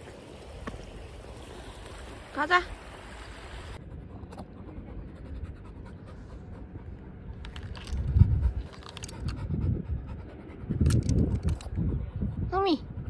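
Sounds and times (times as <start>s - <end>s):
large dog panting: 3.8s - 13.0s.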